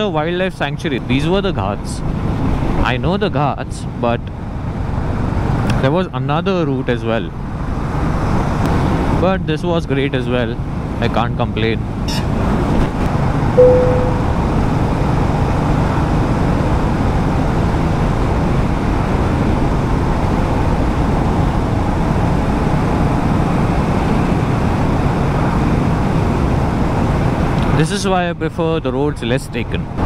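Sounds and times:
road and wind noise: 0:00.0 - 0:30.0
short loud tone: 0:13.6 - 0:14.4.

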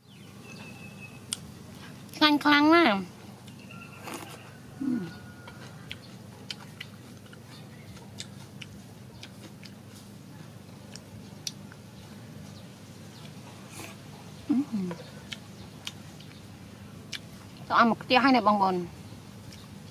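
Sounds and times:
person chewing food: 0:03.4 - 0:17.6, 0:19.4 - 0:19.9
person humming mm: 0:04.8 - 0:05.2, 0:14.5 - 0:15.0.

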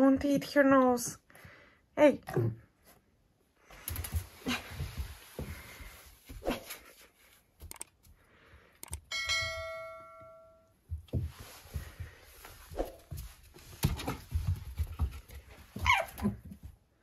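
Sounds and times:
paws scuffling on hard floor: 0:03.7 - 0:06.9, 0:10.9 - 0:16.8
bell-like chime: 0:09.1 - 0:10.8.

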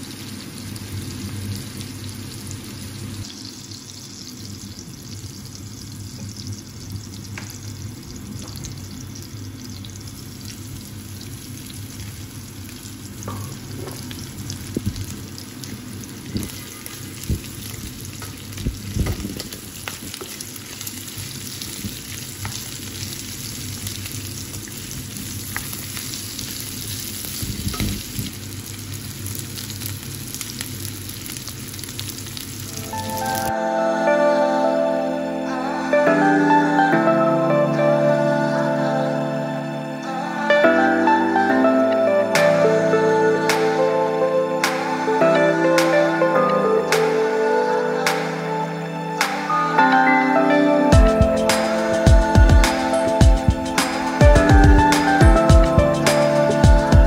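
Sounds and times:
food sizzling in oil: 0:00.0 - 0:33.6.

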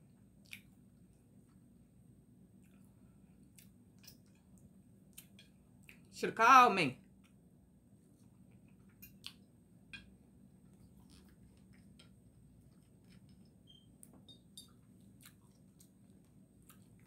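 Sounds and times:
low room hum: 0:00.0 - 0:17.0
faint chewing: 0:00.3 - 0:01.7, 0:02.5 - 0:06.1, 0:08.0 - 0:17.0.

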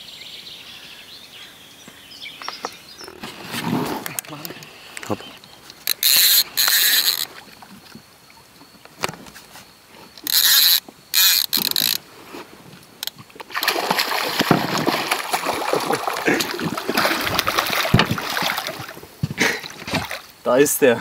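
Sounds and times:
fishing reel buzzing: 0:05.7 - 0:07.4, 0:10.2 - 0:12.0
fish splashing in water: 0:13.4 - 0:20.3.

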